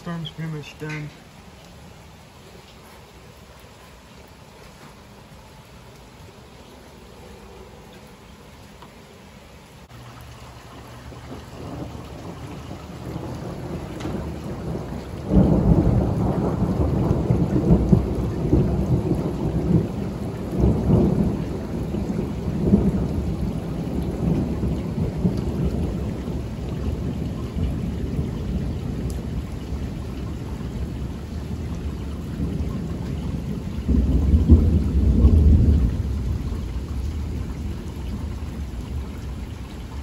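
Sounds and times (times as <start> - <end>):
thunder rumbling: 10.3 - 40.0.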